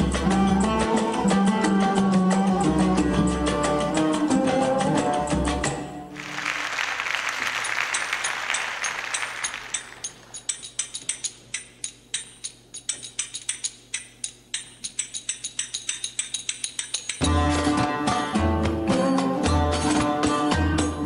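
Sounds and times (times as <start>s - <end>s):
applause: 6.1s - 10.3s
sharp rhythmic metallic clicks: 7.6s - 17.3s.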